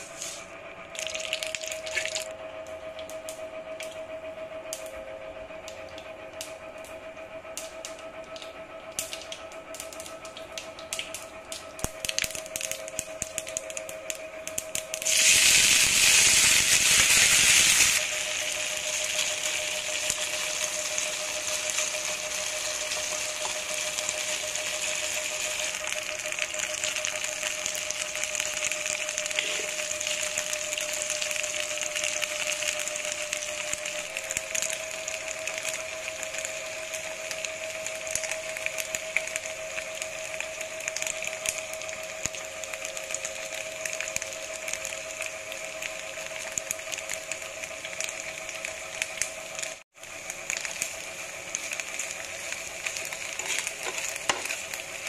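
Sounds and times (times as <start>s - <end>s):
seeds crackling in hot oil: 0.0s - 5.0s, 5.6s - 55.0s
steady hum: 0.0s - 55.0s
loud burst of sizzling: 14.4s - 55.0s.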